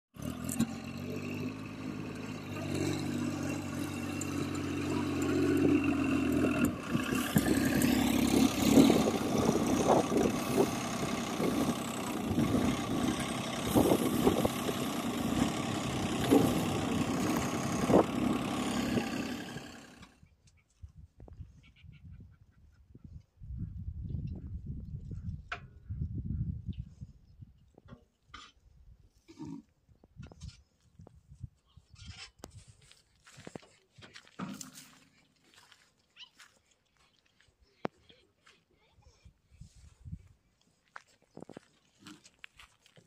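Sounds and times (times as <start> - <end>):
tractor diesel engine running: 0.1 - 20.2.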